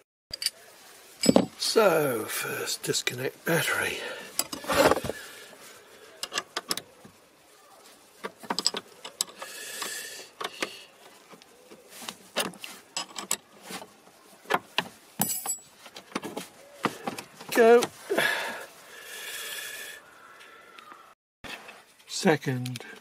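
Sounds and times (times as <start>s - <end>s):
metal tool clicks and clinks: 0.3s - 0.6s.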